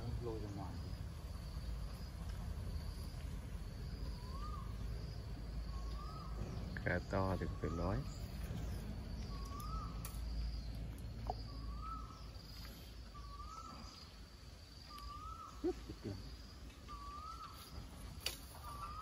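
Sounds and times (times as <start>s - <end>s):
low rumble: 0.8s - 14.5s
bird whistling: 4.2s - 4.8s, 9.2s - 10.3s, 11.5s - 12.3s, 13.1s - 14.1s, 14.9s - 15.6s, 16.9s - 18.0s.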